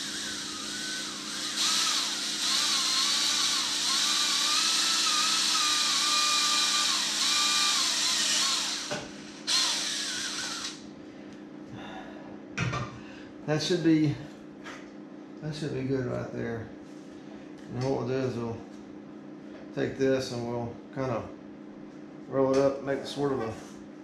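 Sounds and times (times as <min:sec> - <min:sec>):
cordless drill boring through plastic: 0:00.0 - 0:10.8.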